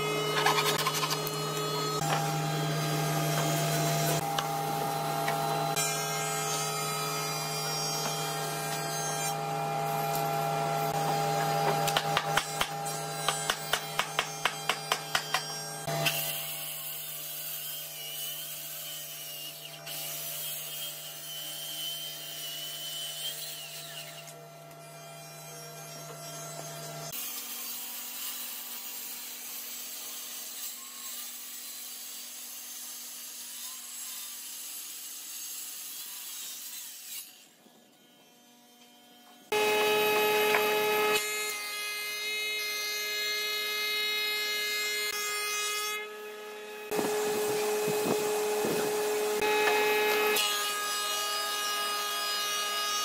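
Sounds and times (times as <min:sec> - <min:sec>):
wood planer humming: 0:00.0 - 0:16.2, 0:39.5 - 0:45.4, 0:46.0 - 0:53.0
circular saw cutting wood: 0:00.0 - 0:53.0.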